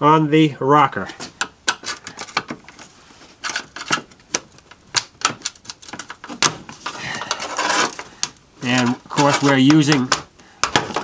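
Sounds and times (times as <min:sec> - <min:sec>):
plastic scraping: 0:01.2 - 0:11.0.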